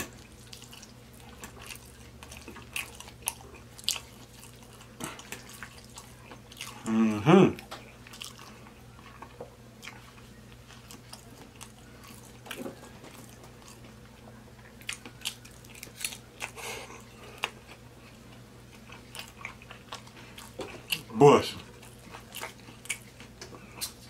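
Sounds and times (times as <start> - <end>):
close chewing with mouth smacks: 0.0 - 24.0.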